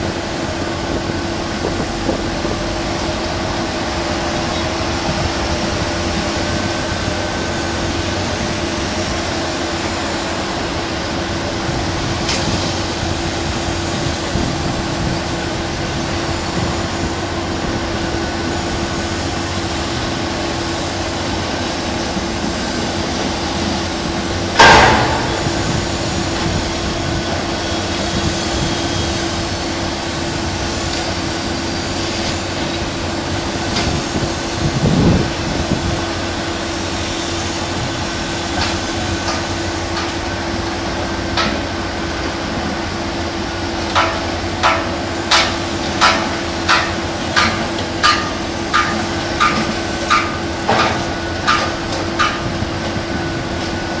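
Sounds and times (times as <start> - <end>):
construction machinery droning: 0.0 - 54.0
loud metallic bang: 24.6 - 26.9.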